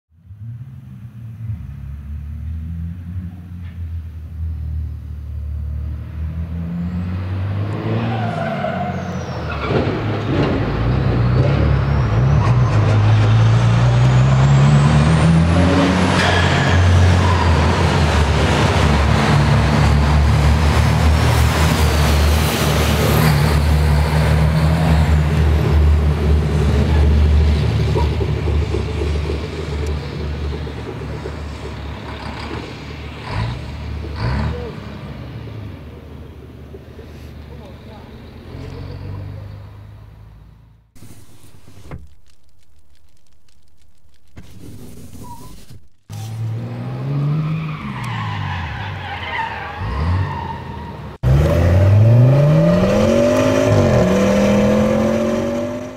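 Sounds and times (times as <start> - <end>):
diesel truck engine accelerating: 0.1 - 55.9
high whine: 41.0 - 46.2.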